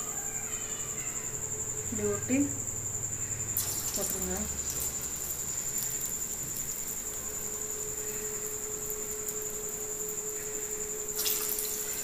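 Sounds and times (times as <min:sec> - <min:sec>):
low steady hum: 0:00.0 - 0:12.0
food sizzling in hot oil: 0:03.4 - 0:12.0.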